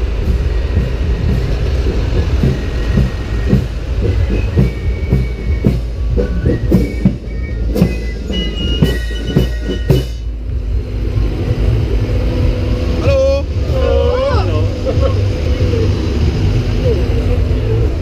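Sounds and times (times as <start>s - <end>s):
tractor rumble: 0.0s - 18.0s
held tones: 0.4s - 10.8s.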